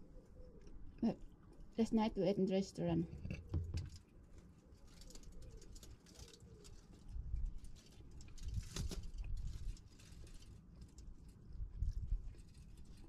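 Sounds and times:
pigeon cooing: 0:00.0 - 0:01.2.

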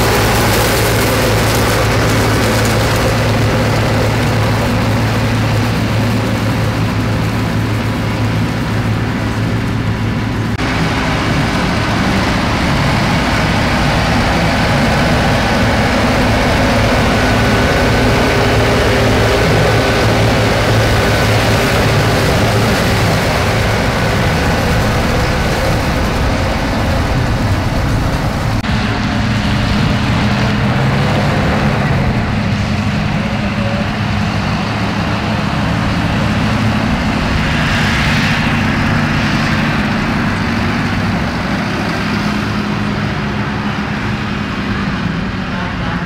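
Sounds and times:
tractor engine droning: 0:00.0 - 0:46.0.

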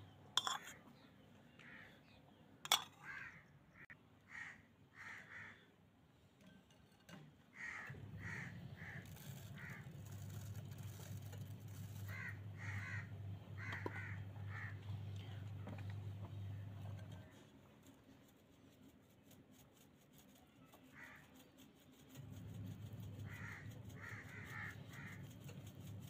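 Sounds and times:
steady low hum: 0:07.6 - 0:18.4.

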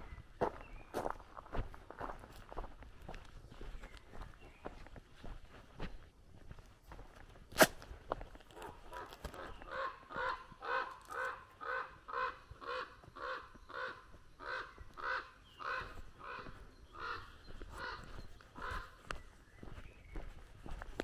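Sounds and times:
bird's harsh calls: 0:08.6 - 0:20.5.

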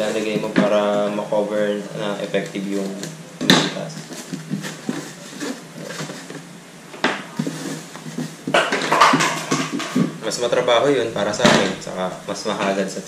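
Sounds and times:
styrofoam box rubbing and knocking: 0:07.3 - 0:10.1.

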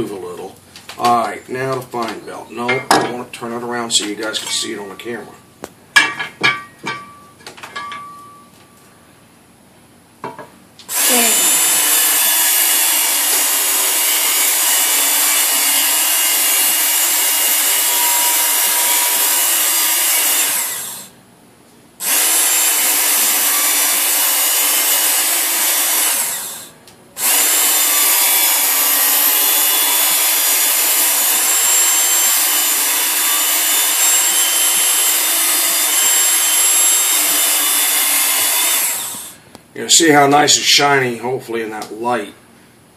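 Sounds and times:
belt sharpener grinding whir: 0:10.9 - 0:21.2, 0:22.0 - 0:39.4.

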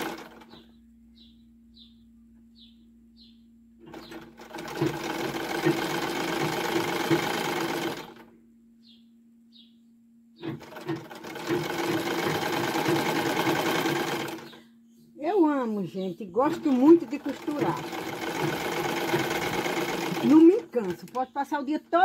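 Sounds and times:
sewing machine stitching: 0:00.0 - 0:00.5, 0:03.9 - 0:08.2, 0:10.4 - 0:14.6, 0:16.5 - 0:21.2.

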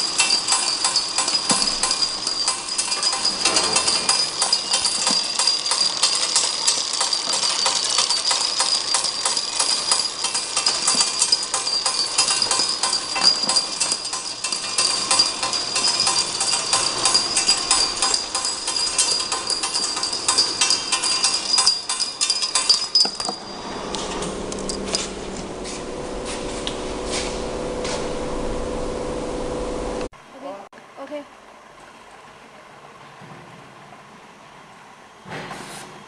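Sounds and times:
machine drive whine: 0:00.0 - 0:30.1
vials clicking and rattling: 0:00.2 - 0:23.4.

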